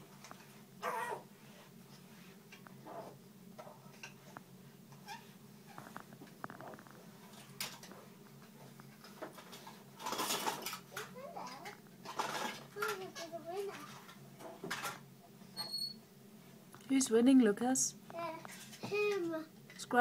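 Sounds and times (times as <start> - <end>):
children squeaking and babbling: 0.8 - 1.2.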